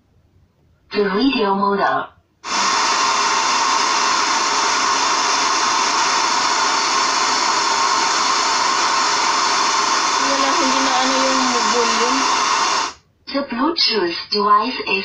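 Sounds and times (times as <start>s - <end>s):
radio static hiss: 2.4s - 13.0s.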